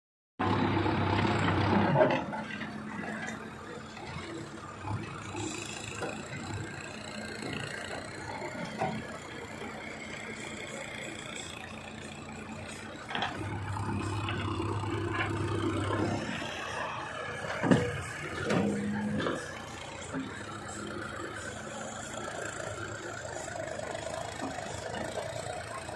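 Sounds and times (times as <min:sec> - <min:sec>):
diesel engine running: 0:00.4 - 0:25.9.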